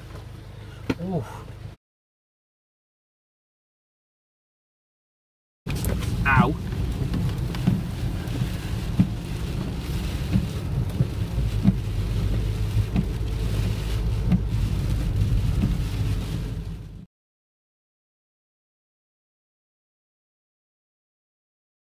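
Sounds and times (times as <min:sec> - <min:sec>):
car interior road rumble: 0:00.0 - 0:01.8, 0:05.7 - 0:17.1.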